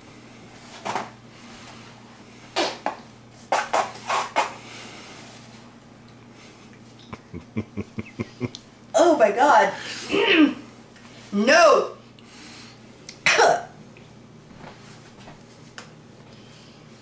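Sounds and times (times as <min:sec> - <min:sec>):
woman spitting into paper towel: 0:02.6 - 0:02.9
woman gagging coughs: 0:13.2 - 0:13.8.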